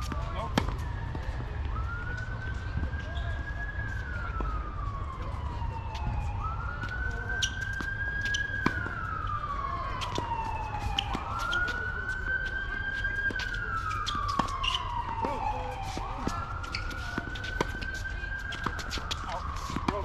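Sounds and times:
siren wailing: 0:00.0 - 0:20.0.

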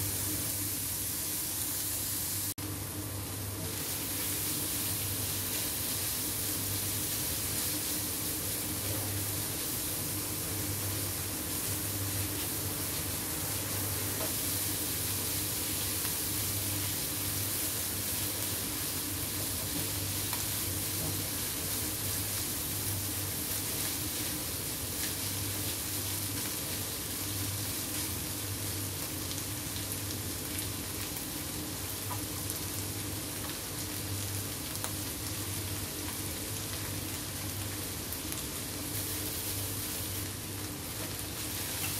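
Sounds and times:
vegetables sizzling in a pan: 0:00.0 - 0:41.9.

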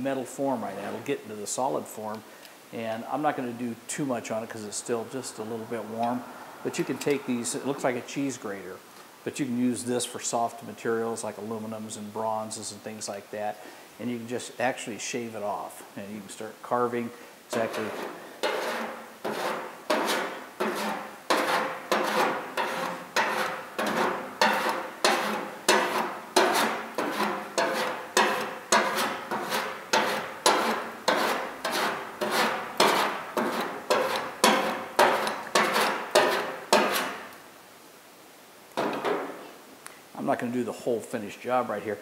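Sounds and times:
file rasping on metal: 0:17.5 - 0:37.2.

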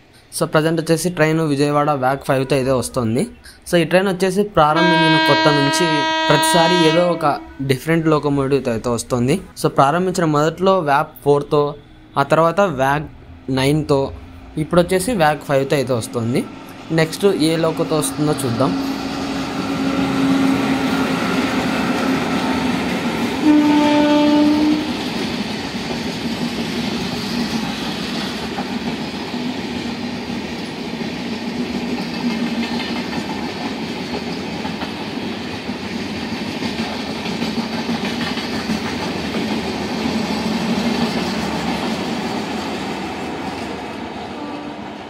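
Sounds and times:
locomotive horn: 0:04.7 - 0:07.7, 0:23.4 - 0:25.0, 0:44.4 - 0:44.9
train rolling rumble: 0:11.8 - 0:45.0.

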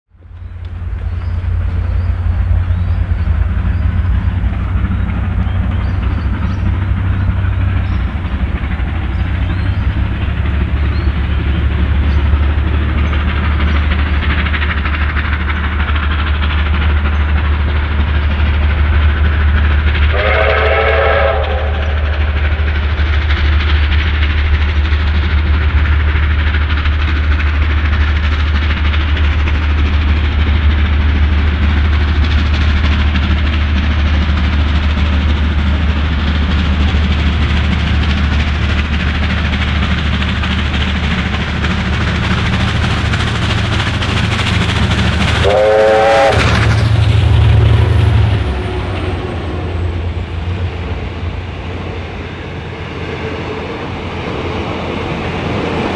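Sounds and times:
steam locomotive exhaust: 0:00.2 - 0:55.9
steam whistle: 0:20.1 - 0:22.0, 0:45.4 - 0:46.6.

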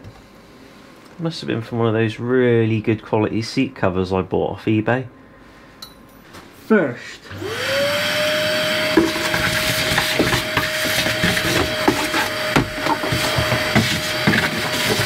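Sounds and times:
vacuum cleaner running: 0:07.2 - 0:15.0.

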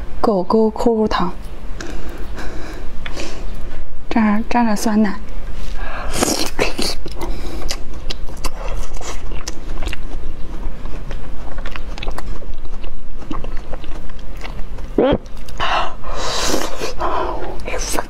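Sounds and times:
chewing gummy candy: 0:06.1 - 0:18.0.

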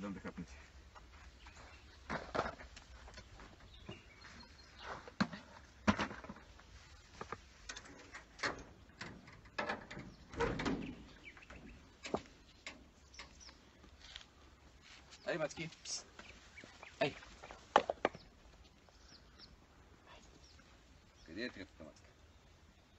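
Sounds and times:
door handled and opened: 0:07.6 - 0:13.3.

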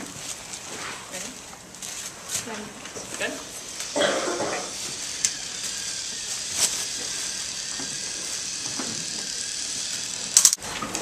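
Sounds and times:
toy motor whirring: 0:03.7 - 0:10.6.

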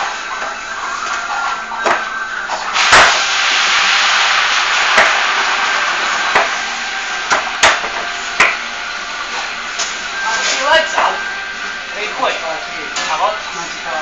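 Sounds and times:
steady hiss: 0:02.7 - 0:10.2.

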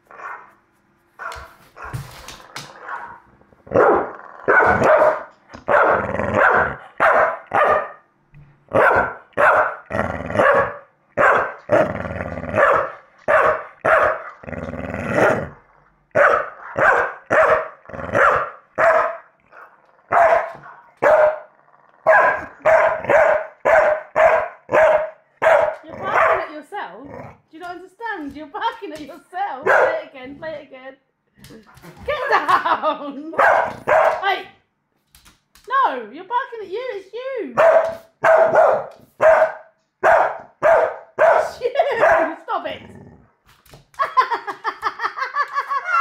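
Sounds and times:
dog barking: 0:02.8 - 0:08.0, 0:08.7 - 0:11.6, 0:12.6 - 0:14.4, 0:16.2 - 0:21.5, 0:22.1 - 0:26.5, 0:29.6 - 0:30.0, 0:33.4 - 0:34.2, 0:37.6 - 0:42.4
recorded dog barks from phone: 0:02.8 - 0:08.0, 0:08.7 - 0:11.6, 0:12.6 - 0:14.3, 0:16.2 - 0:19.3, 0:20.1 - 0:26.5, 0:29.6 - 0:30.1, 0:33.4 - 0:34.3, 0:37.6 - 0:42.4.

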